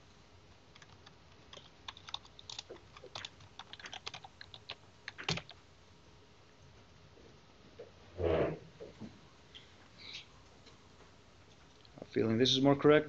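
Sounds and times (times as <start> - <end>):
typing on computer keyboard: 0.7 - 5.6.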